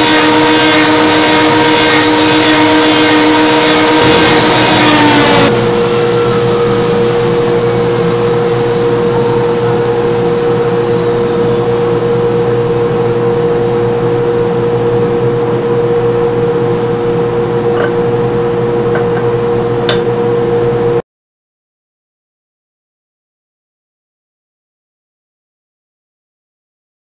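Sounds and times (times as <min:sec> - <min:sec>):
lathe machinery humming: 0:00.0 - 0:20.3
high whine falling in pitch: 0:00.0 - 0:21.0.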